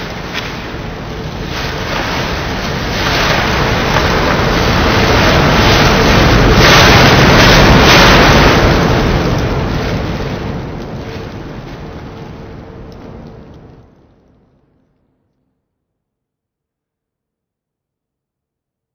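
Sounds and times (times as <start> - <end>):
loud rushing noise: 0.0 - 13.2.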